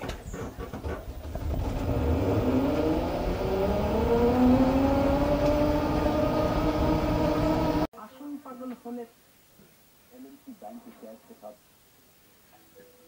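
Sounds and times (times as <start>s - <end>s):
auto-rickshaw engine running: 1.1s - 7.9s.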